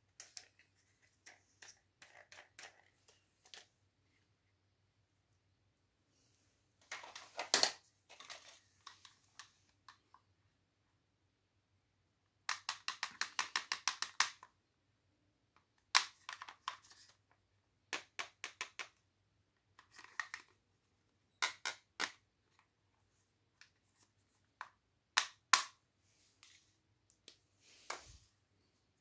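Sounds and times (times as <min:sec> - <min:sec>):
plastic toy hair dryers clicking: 0:12.5 - 0:14.5.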